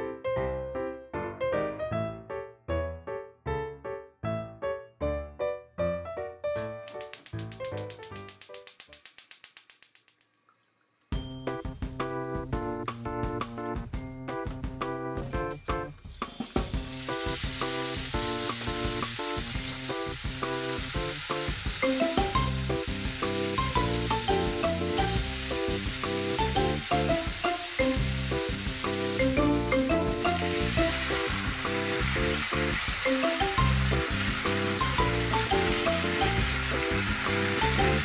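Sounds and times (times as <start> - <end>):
background music with stepping notes: 0.0 - 9.0, 11.1 - 38.0
food frying in a pan: 6.9 - 11.0, 15.9 - 38.0.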